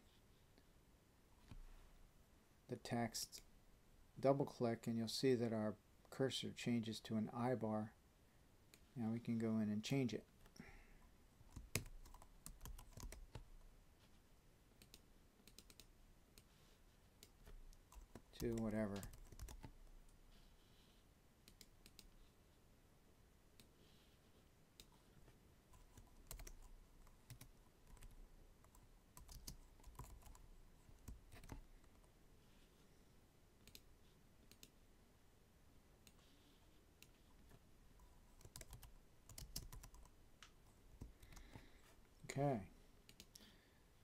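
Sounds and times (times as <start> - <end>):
faint keyboard typing: 10.4 - 14.1, 14.7 - 20.2, 21.4 - 22.3, 24.7 - 32.2, 33.6 - 34.8, 36.0 - 41.9, 43.0 - 43.5.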